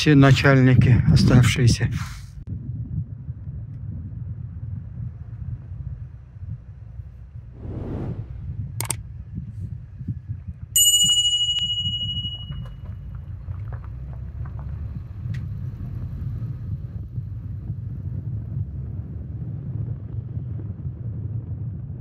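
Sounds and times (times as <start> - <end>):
steady low rumble: 2.5 - 10.7.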